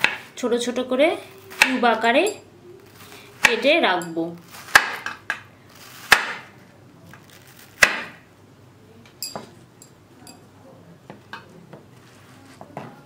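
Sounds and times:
knife chopping on wooden board: 0.0 - 0.3, 4.6 - 5.4, 6.0 - 6.5, 7.8 - 8.2.

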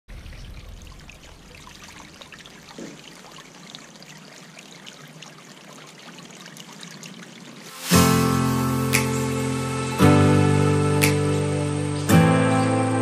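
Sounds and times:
fountain water trickling: 0.1 - 13.0.

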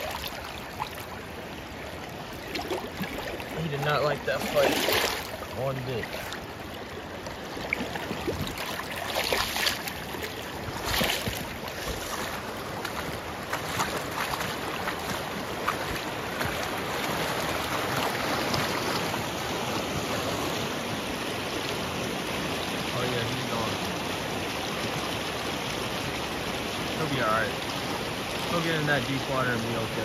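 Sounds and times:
water rushing over rocks: 0.0 - 30.0
water splashes: 0.0 - 30.0.

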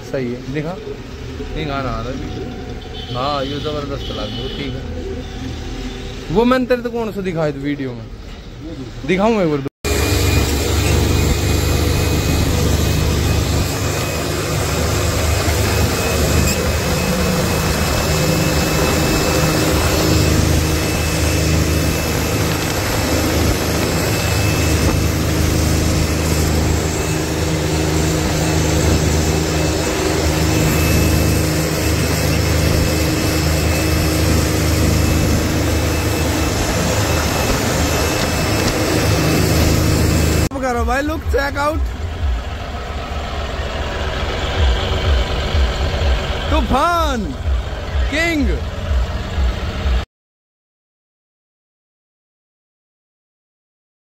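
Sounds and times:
tractor diesel engine running: 9.9 - 50.0
wind rushing: 10.2 - 40.5.

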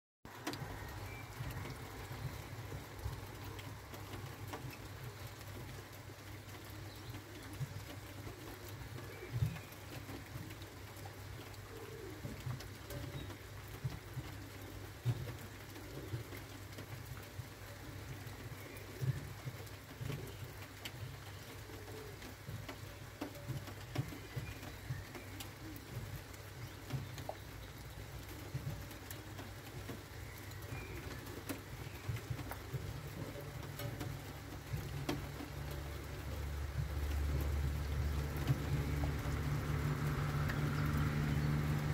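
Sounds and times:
raindrops tapping: 0.3 - 41.9
steady rain: 0.3 - 41.9
pigeon cooing: 6.5 - 13.3, 14.2 - 27.5, 28.2 - 37.4.

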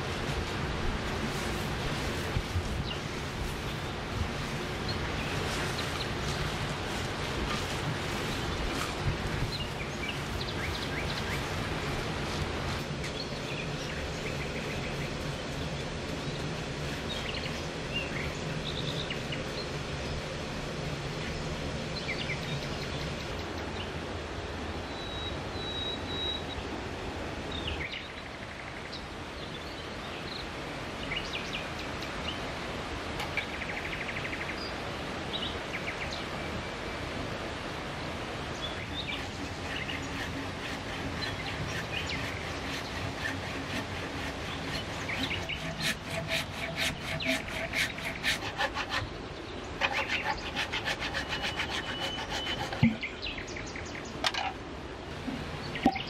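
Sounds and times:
outdoor background noise: 0.0 - 56.0
hand saw cutting log: 38.9 - 49.2, 49.8 - 53.1.

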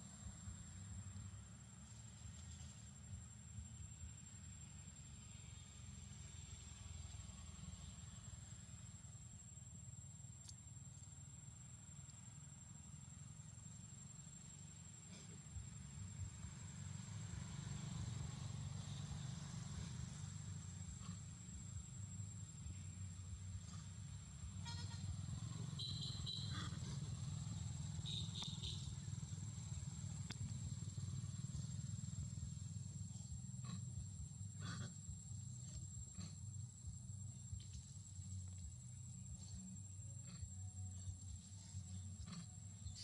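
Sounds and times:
low steady rumble: 18.2 - 43.0.

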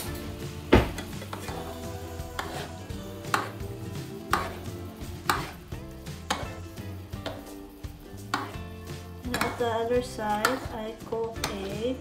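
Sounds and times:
background music: 0.0 - 12.0
spoon basting steak in pan: 0.0 - 12.0
spoon knocking against pan: 3.3 - 3.6, 4.3 - 4.6, 5.2 - 7.5, 8.2 - 9.7, 10.3 - 10.8.

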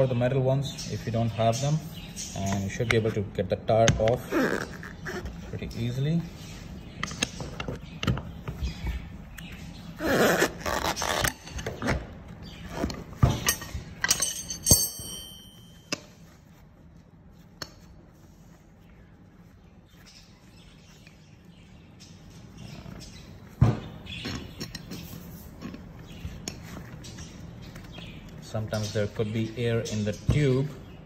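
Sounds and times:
rubber tire rubbing: 9.9 - 13.2
tire levers clinking on rim: 10.6 - 16.3.

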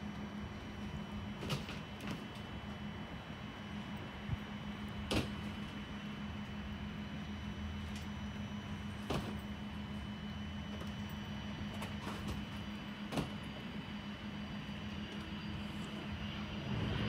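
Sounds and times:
distant jet engine hum: 0.0 - 17.0
faint high whine: 0.0 - 17.0.

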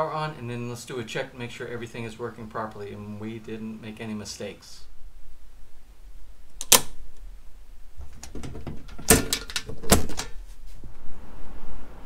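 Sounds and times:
circuit breaker clicks and knocks: 6.6 - 7.0.

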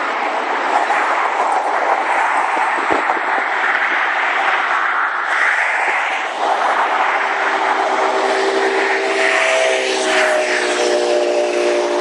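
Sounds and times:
loud rushing noise: 0.0 - 12.0
horn sounding held chord: 10.6 - 12.0.

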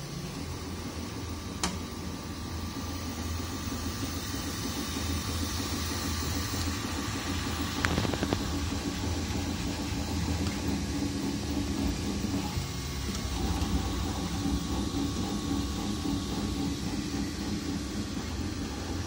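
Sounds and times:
cooling fans whirring: 0.0 - 19.0
stepper motors whining: 0.0 - 19.0.

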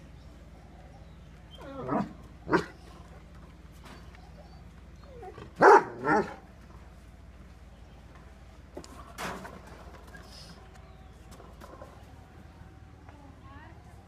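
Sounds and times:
big dogs barking: 0.0 - 6.6.

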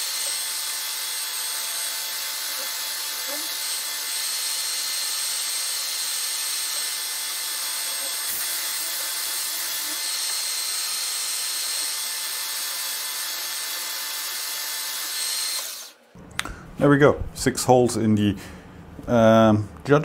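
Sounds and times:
milling machine drilling steel: 0.0 - 16.0.

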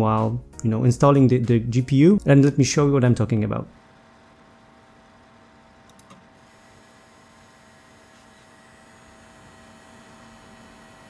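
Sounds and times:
graphics card coil whine: 3.6 - 11.0
small click: 5.9 - 6.2.

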